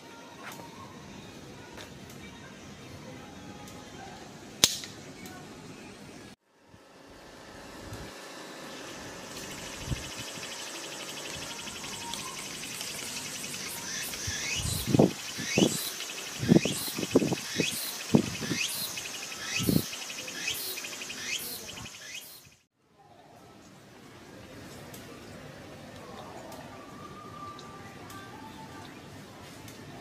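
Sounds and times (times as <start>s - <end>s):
insects trilling: 8.7s - 22.6s
bird calling loudly: 11.2s - 22.4s.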